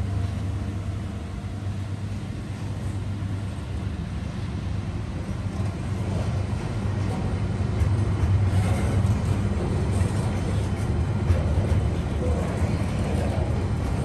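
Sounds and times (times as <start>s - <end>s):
diesel locomotive rumble: 0.0s - 14.0s
freight wagons rolling on rails: 5.0s - 14.0s.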